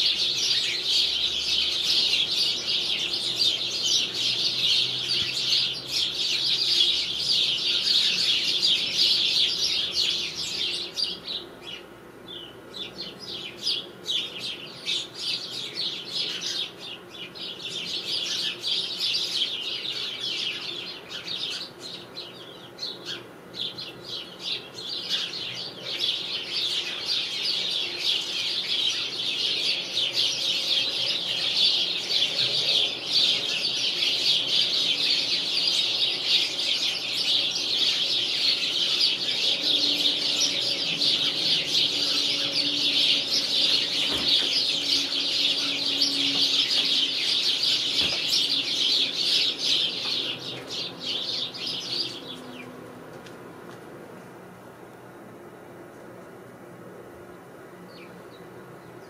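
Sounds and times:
sparrows chirping: 0.0 - 53.8, 55.8 - 59.0.

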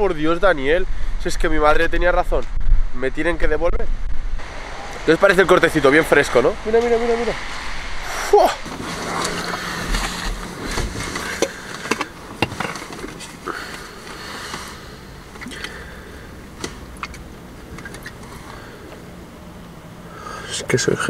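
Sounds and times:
rustling: 8.6 - 19.1
sharp clicks and knocks: 8.7 - 14.7
plastic bottle being handled: 8.7 - 14.8.

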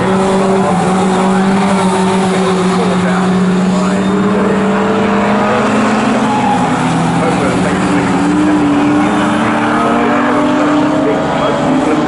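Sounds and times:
race car engines passing: 0.0 - 12.0.

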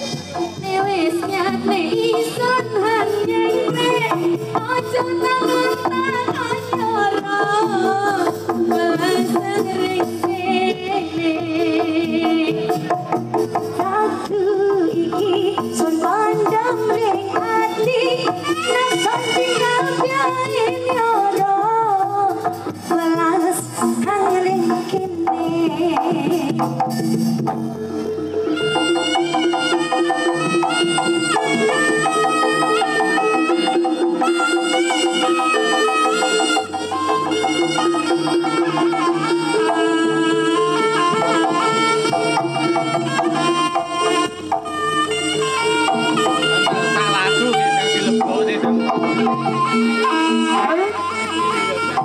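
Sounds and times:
bending melody line: 0.0 - 52.0
hand drums and percussion: 0.0 - 52.0
held instrument tones: 24.3 - 52.0
steady drumming: 28.6 - 52.0.

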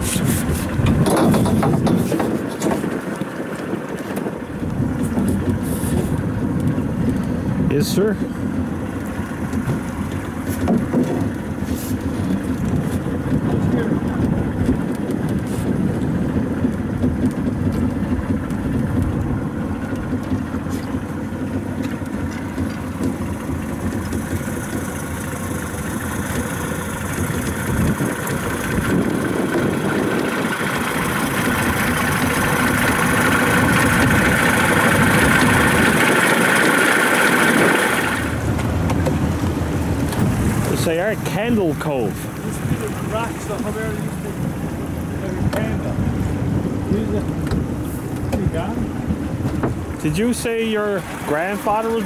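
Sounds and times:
boat motor running: 0.0 - 52.0
wind: 0.0 - 52.0.

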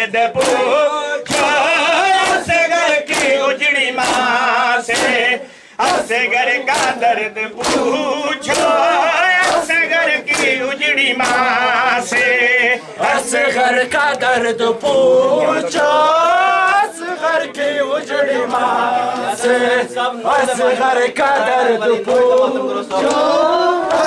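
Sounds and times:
man singing a lament: 0.0 - 24.0
chest beating slaps: 0.4 - 1.6, 2.2 - 3.4, 4.0 - 8.8, 9.4 - 10.6.

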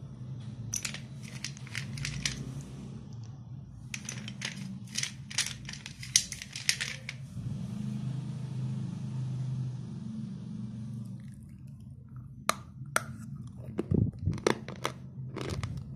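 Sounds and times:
low steady hum: 0.0 - 7.4, 10.9 - 15.9
pencil pieces clicking on metal: 0.8 - 2.5, 4.0 - 7.2.

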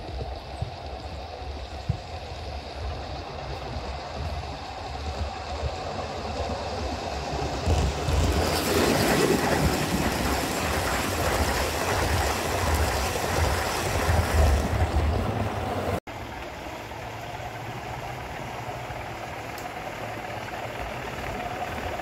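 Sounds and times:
model train rumbling on track: 0.0 - 22.0.

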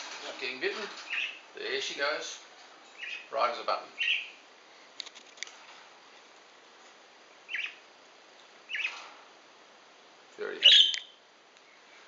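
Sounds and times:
budgerigars chirping: 1.0 - 1.4, 2.9 - 3.4, 4.0 - 4.4, 7.5 - 7.8, 8.7 - 9.0, 10.6 - 11.1.

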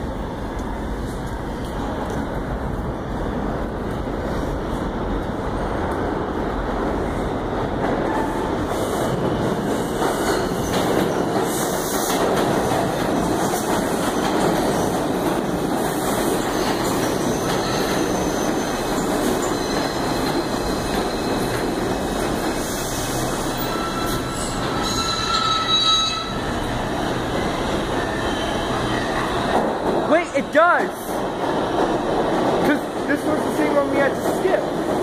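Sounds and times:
subway train wheels rumbling: 0.0 - 35.0
high brake squeal: 23.0 - 26.6, 27.9 - 29.4.

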